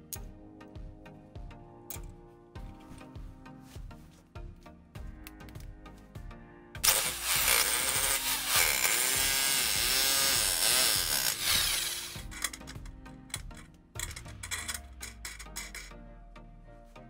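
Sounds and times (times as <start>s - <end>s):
electric drill running: 6.8s - 12.5s.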